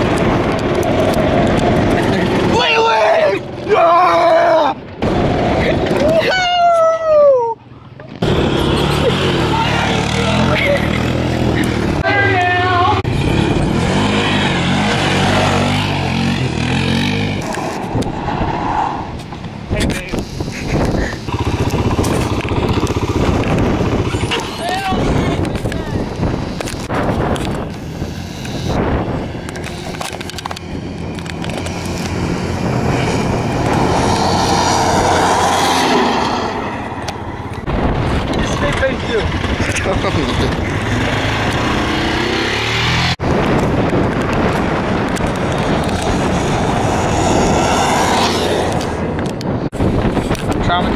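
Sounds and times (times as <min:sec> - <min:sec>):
quad engine revving: 0:08.1 - 0:17.5, 0:20.2 - 0:43.8, 0:44.4 - 0:49.3
golf cart engine running: 0:20.2 - 0:33.8.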